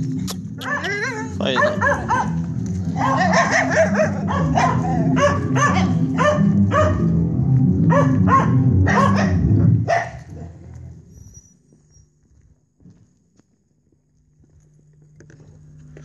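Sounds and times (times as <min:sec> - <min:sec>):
low music: 0:00.0 - 0:09.9
dog barking: 0:00.6 - 0:07.1, 0:07.9 - 0:10.5.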